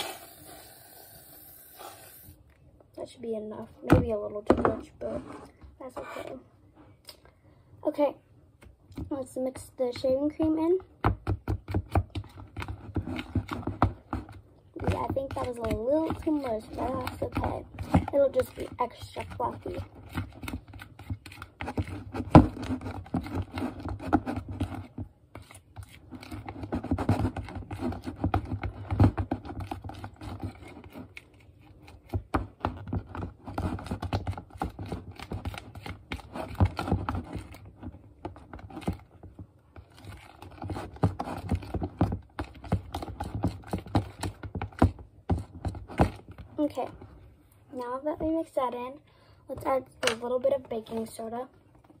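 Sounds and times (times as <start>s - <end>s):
spoon stirring sticky slime: 11.6s - 46.8s.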